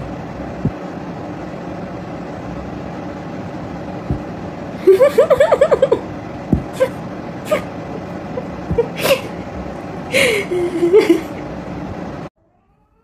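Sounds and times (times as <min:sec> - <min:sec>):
steady background noise: 0:00.0 - 0:13.0
soft low thumps: 0:04.0 - 0:04.4, 0:06.5 - 0:06.9, 0:08.6 - 0:09.0.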